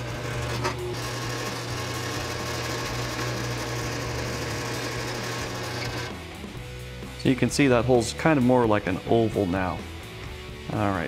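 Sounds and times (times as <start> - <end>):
drill bit boring into wood: 0.0 - 6.1
drill press motor hum: 0.0 - 6.4.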